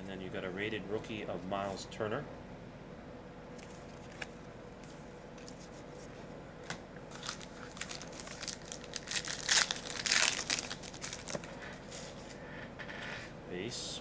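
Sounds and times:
faint steady hum: 0:00.0 - 0:14.0
wrapper crinkling: 0:07.1 - 0:12.4.

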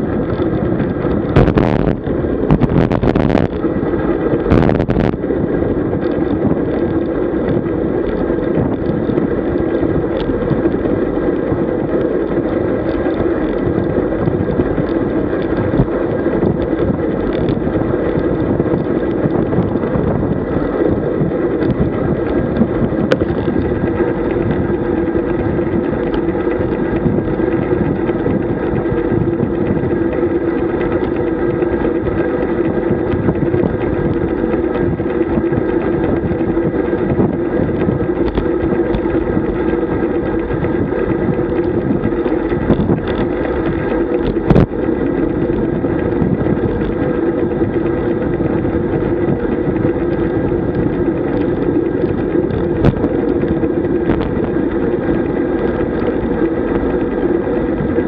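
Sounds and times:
tyre-on-road noise: 0:00.0 - 0:58.0
wind rushing over microphone: 0:00.0 - 0:58.0.

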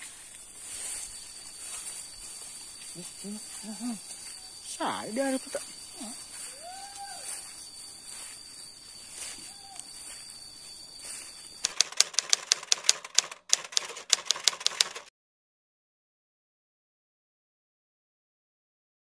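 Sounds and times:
high insect buzz: 0:00.0 - 0:12.6
typewriter keystroke clacks: 0:11.6 - 0:15.1.

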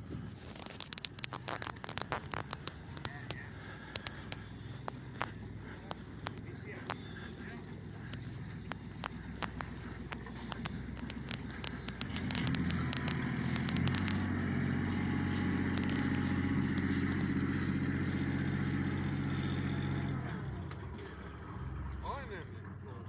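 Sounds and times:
engine humming: 0:00.0 - 0:23.0
sharp clicks: 0:00.4 - 0:21.4.

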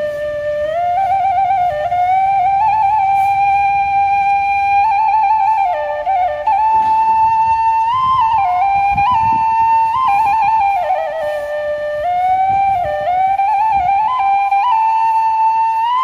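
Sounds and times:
slow solo flute melody: 0:00.0 - 0:16.0.

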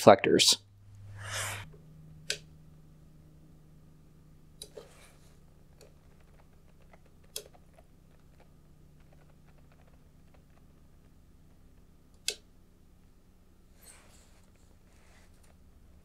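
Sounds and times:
low room hum: 0:00.0 - 0:16.0
sharp clicks: 0:05.8 - 0:11.2, 0:11.8 - 0:12.5.

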